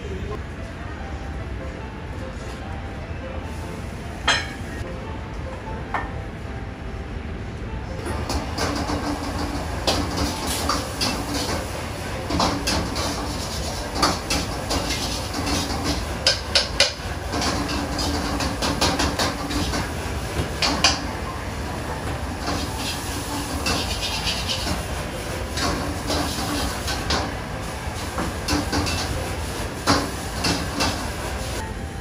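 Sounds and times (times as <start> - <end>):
gas burner rumble: 8.0 - 31.7.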